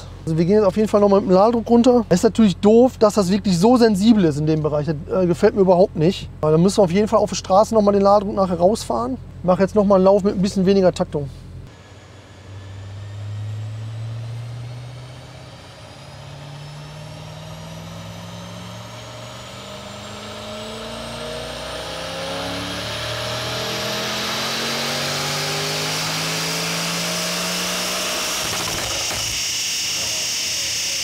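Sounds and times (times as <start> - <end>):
turbo whine rising in pitch: 11.4 - 31.0
car engine revving at full throttle: 11.6 - 31.0.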